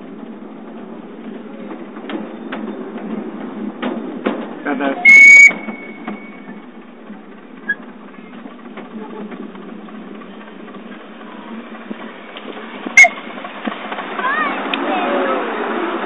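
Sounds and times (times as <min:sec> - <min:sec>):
wheels rattling on rails: 0:00.0 - 0:16.0
high-pitched train toot: 0:05.0 - 0:06.6, 0:13.0 - 0:13.2.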